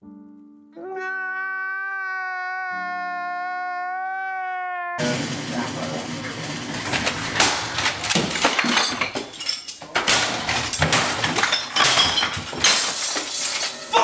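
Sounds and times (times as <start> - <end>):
crashes and bangs: 5.0 - 9.2
objects clattering: 5.0 - 14.0.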